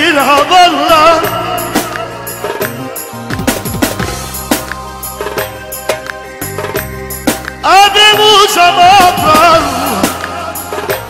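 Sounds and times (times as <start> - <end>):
drum kit beat: 0.0 - 11.0
keyboard notes: 0.0 - 11.0
sustained bass notes: 1.2 - 8.0.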